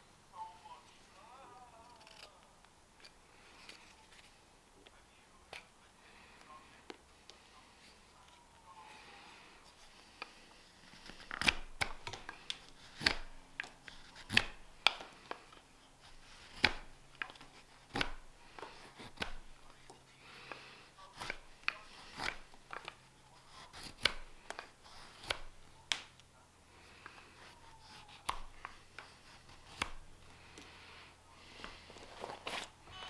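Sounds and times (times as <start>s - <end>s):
knife carving wood shavings: 1.7s - 2.4s, 9.7s - 32.8s.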